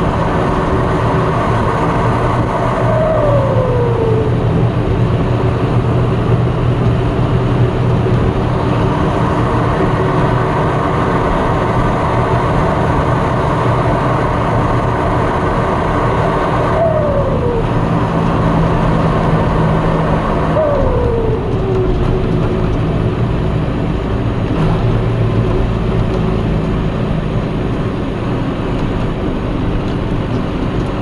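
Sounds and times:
tractor diesel engine running: 0.0s - 31.0s
turbocharger whistle: 1.9s - 4.7s, 16.0s - 22.4s.

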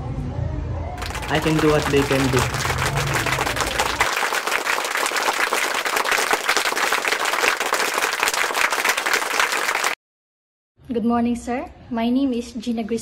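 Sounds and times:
crowd applause: 1.0s - 10.0s.

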